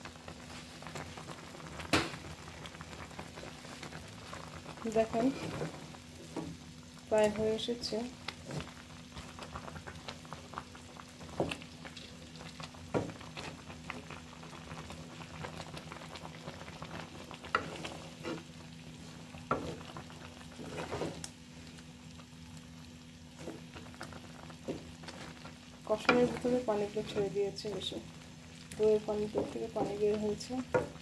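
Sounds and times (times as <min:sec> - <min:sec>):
low sizzle of cooking sauce: 0:00.0 - 0:31.0
wooden spatula scraping metal pan: 0:17.5 - 0:18.5, 0:20.6 - 0:21.3.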